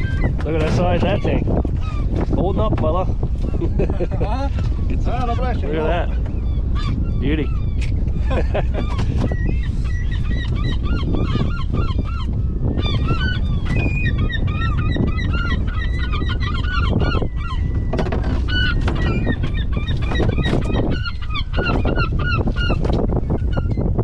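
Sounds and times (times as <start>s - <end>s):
gulls squawking: 0.0s - 23.9s.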